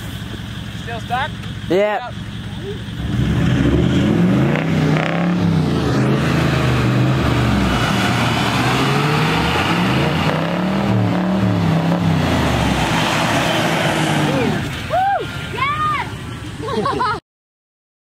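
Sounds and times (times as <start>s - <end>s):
engine revving hard: 2.9s - 14.8s.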